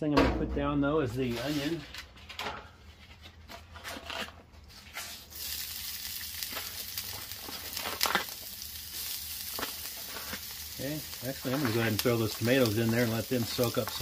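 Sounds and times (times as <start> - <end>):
onion sizzling on griddle: 4.8 - 14.0.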